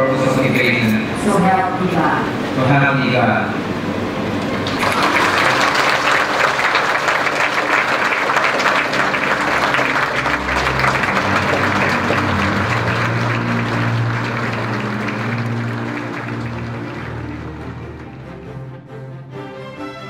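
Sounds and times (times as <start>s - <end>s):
music: 3.9s - 20.0s
audience applauding: 4.4s - 18.7s.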